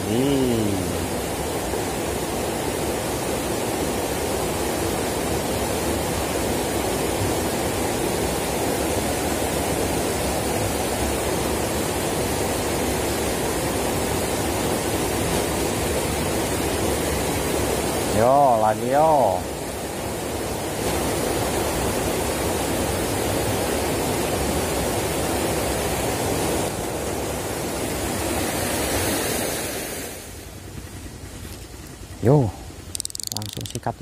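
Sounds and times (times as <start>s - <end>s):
stream running over stones: 0.0s - 34.0s.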